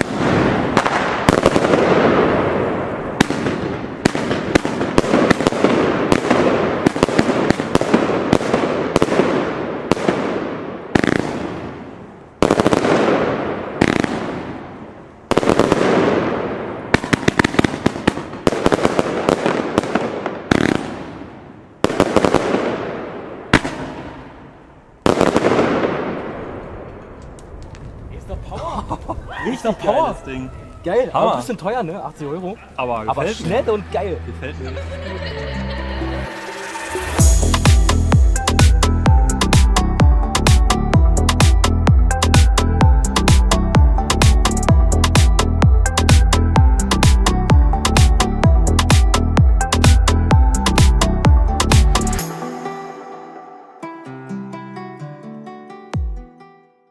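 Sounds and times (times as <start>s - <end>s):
firework shots: 0.0s - 28.1s
firework crackling: 0.0s - 28.5s.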